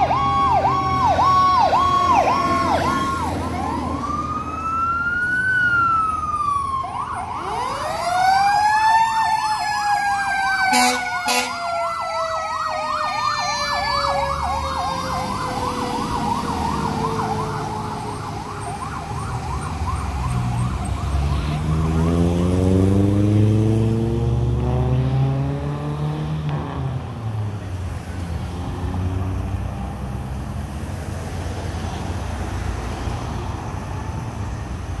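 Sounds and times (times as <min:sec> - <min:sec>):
siren tone gliding down: 0:00.0 - 0:25.7
fire engine siren yelp: 0:00.0 - 0:29.6
traffic noise: 0:00.0 - 0:35.0
engine revving: 0:19.2 - 0:32.0.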